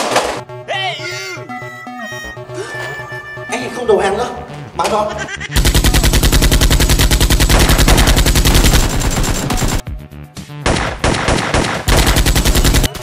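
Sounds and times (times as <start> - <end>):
automatic gunfire bursts: 5.6 - 9.8, 10.7 - 13.0.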